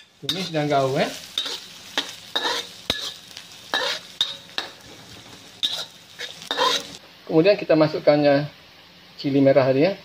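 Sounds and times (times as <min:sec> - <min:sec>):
garlic sizzling in hot oil: 0:00.0 - 0:08.9
wooden spatula scraping a wok: 0:00.2 - 0:04.1, 0:04.7 - 0:07.0.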